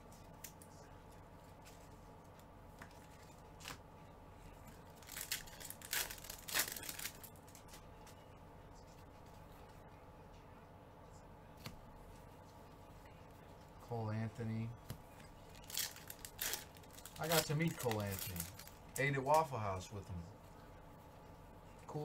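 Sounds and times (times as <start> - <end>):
foil wrapper tearing and crinkling: 4.9 - 7.3, 15.5 - 18.7.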